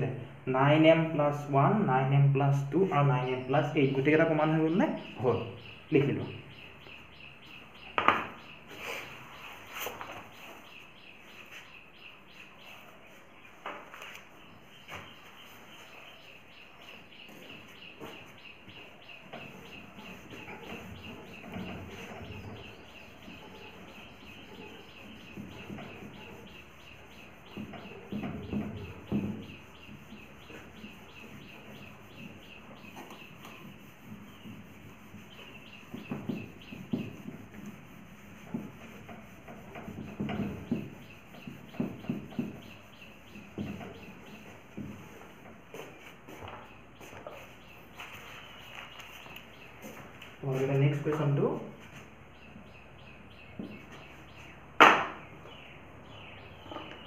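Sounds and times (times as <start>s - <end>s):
steady chirping: 2.6s - 57.0s
duster wiping a whiteboard: 8.5s - 52.2s.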